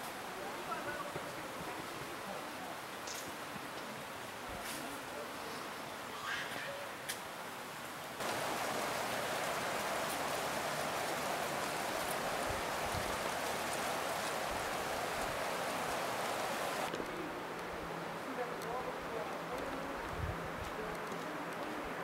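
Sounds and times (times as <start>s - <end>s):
creek water rushing: 7.4s - 17.0s.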